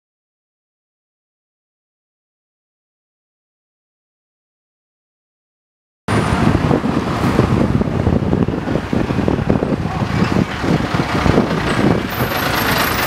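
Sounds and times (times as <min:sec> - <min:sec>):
bus engine running: 0:06.1 - 0:13.0
street traffic: 0:06.1 - 0:13.0.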